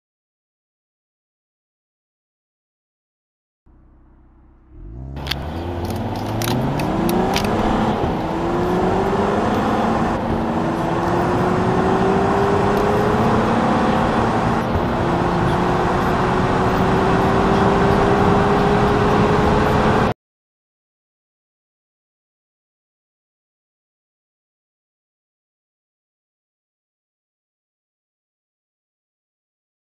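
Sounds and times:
car engine accelerating: 3.7s - 20.2s
sharp clicks: 5.2s - 7.6s.

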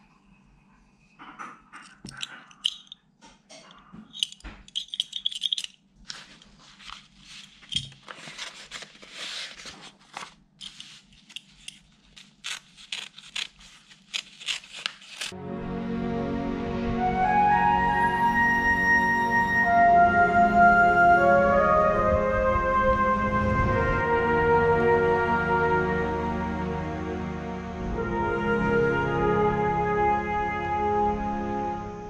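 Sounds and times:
paper crinkling and rustling: 4.2s - 15.3s
knife slicing through paper: 6.1s - 11.4s, 12.0s - 15.3s.

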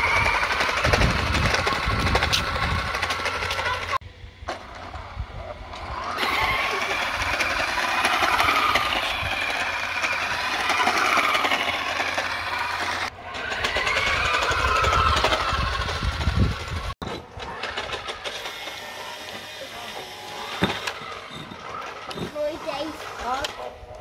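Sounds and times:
plastic tyres rumbling on concrete: 0.0s - 18.2s
toy car motor whining: 0.0s - 23.9s.

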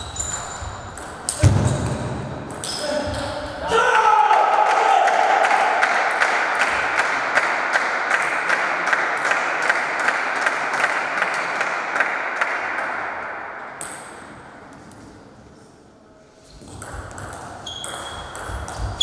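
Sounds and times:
applause in a large hall: 4.6s - 13.0s.

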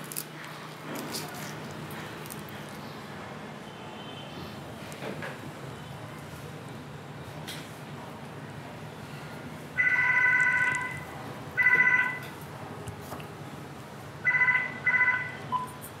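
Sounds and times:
mobile phone ringtone: 9.8s - 11.0s, 11.6s - 12.3s, 14.2s - 15.8s.

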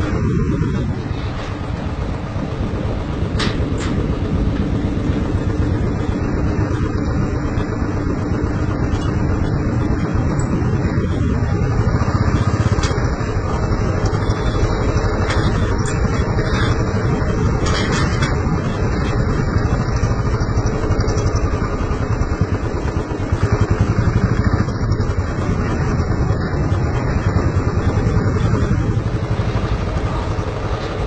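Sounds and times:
motorcycle engine running: 0.0s - 31.0s.

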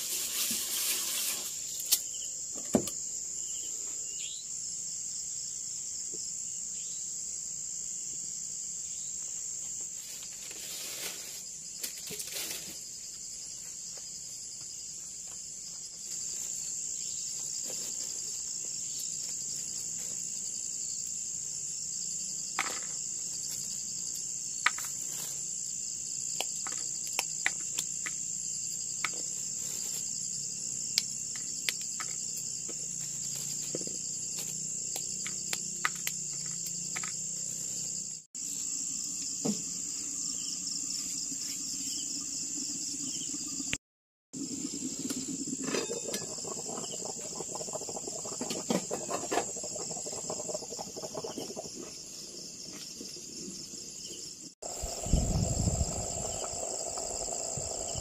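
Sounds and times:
insects chorus: 0.0s - 43.8s, 44.4s - 58.0s.

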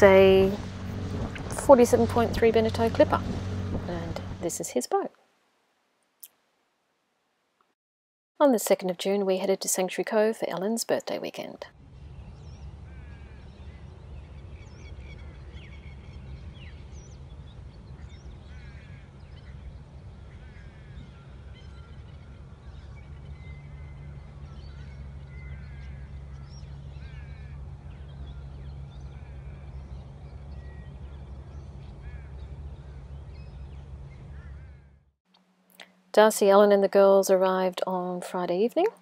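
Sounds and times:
steady low rumble: 0.0s - 4.6s, 11.7s - 34.9s
birds chirping and chattering: 12.1s - 34.8s.

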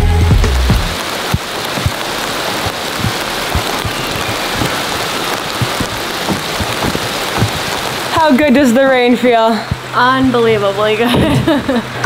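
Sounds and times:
steady rain hiss: 0.2s - 12.0s
soft low thumps: 1.2s - 8.6s, 9.6s - 10.5s.

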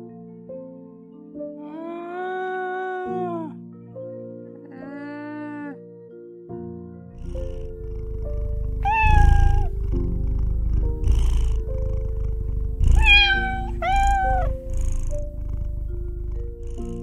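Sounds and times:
cat purring: 7.1s - 17.0s
cat meowing: 8.8s - 9.8s, 12.8s - 14.8s.

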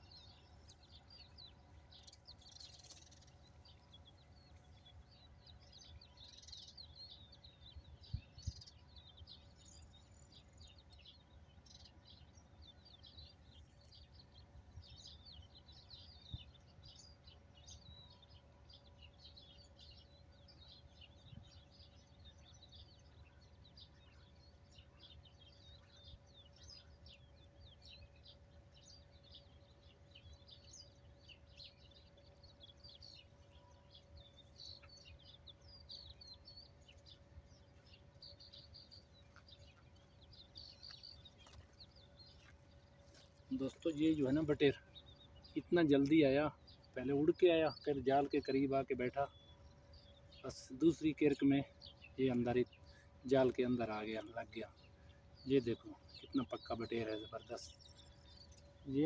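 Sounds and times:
small birds chirping: 0.0s - 59.0s.

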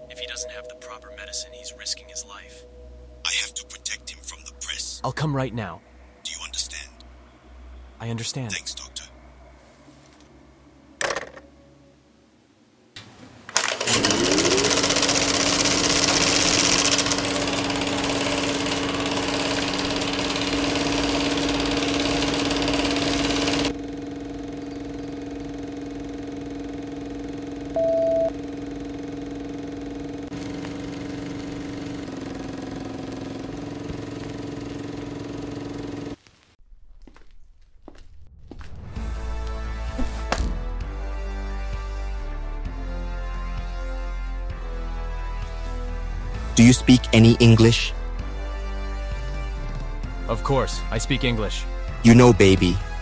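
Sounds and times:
engine starting and running: 13.5s - 36.2s
short beep: 27.8s - 28.3s.

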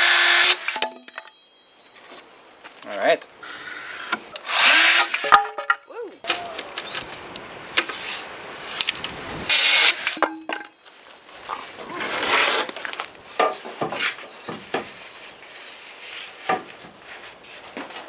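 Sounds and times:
wood being handled: 10.1s - 18.0s.

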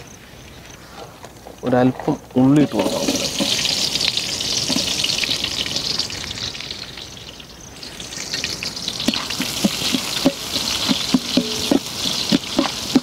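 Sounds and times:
onion sizzling in oil: 2.5s - 13.0s
ladle knocking against pot: 9.1s - 13.0s.

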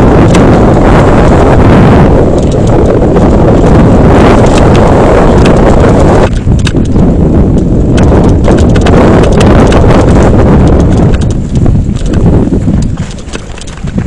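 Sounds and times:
bike rattling over rocks: 0.0s - 14.0s
wind blasting microphone: 0.0s - 14.0s
bike chain and frame knocks: 10.8s - 14.0s.

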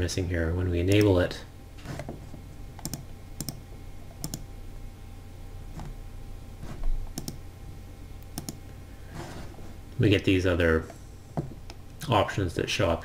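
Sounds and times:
steady low hum: 0.0s - 13.0s
computer mouse clicks: 2.8s - 4.5s, 7.1s - 7.4s, 8.2s - 8.6s.

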